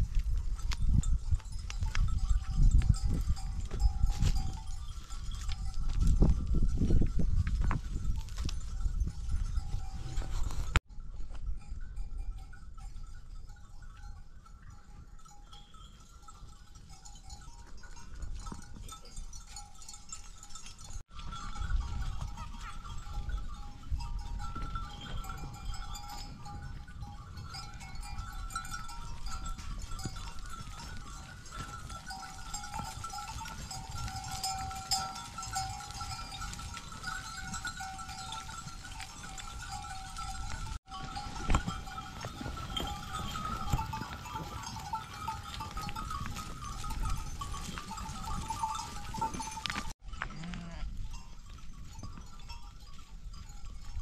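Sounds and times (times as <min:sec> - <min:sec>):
sheep bells ringing: 0:00.0 - 0:54.0
sheep bleating: 0:50.2 - 0:51.0.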